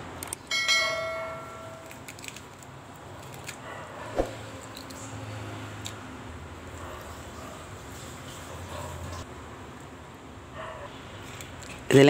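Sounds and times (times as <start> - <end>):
crab being pulled apart: 1.8 - 3.6.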